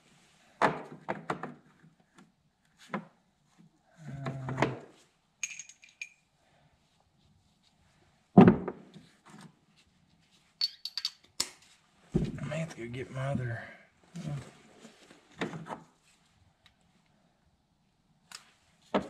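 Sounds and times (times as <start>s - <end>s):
metal sockets clinking: 10.6s - 11.3s.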